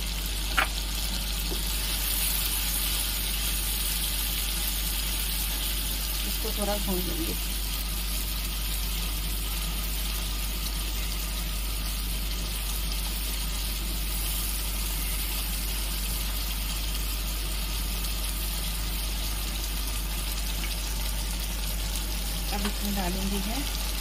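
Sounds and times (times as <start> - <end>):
paste sizzling in oil: 0.0 - 24.0.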